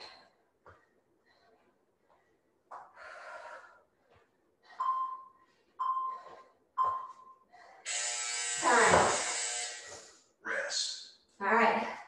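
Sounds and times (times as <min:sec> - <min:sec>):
woman breathing heavily: 0:00.0 - 0:08.0.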